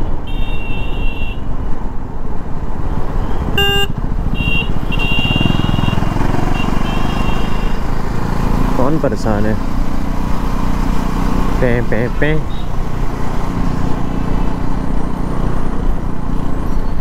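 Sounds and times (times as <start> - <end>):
wind and road rush: 0.0 - 17.0
horn beep: 3.2 - 7.8
motorcycle engine running: 3.3 - 16.6.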